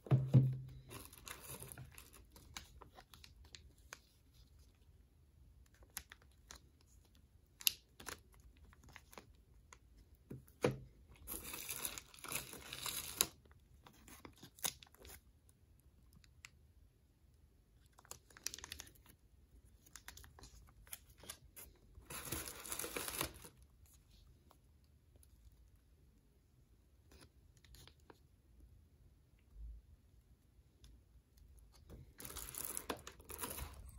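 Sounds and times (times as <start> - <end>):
plastic packaging crinkling and tearing: 0.7 - 4.8, 11.2 - 15.2, 17.9 - 19.1, 19.7 - 23.7, 31.8 - 33.9.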